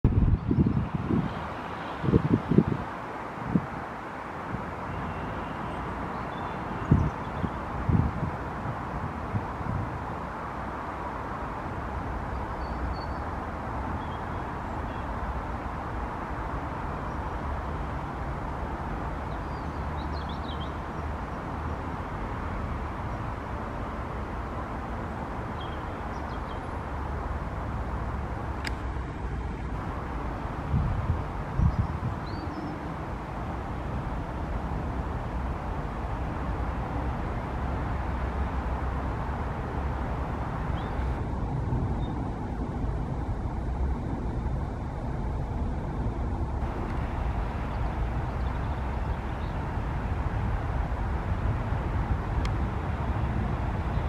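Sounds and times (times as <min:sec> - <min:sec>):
diesel locomotive engine rumble: 0:41.0 - 0:54.0.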